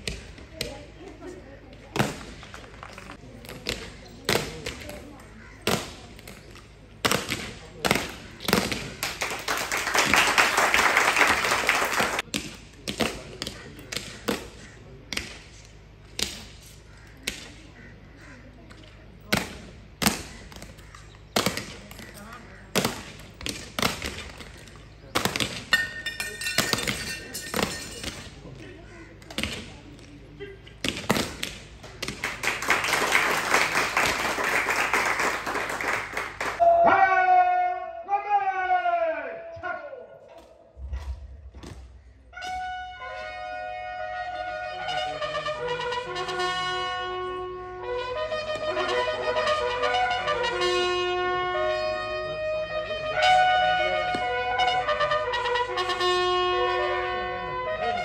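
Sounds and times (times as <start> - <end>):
crowd noise: 0.0 - 58.0
crowd applause: 8.9 - 12.3, 31.8 - 36.6.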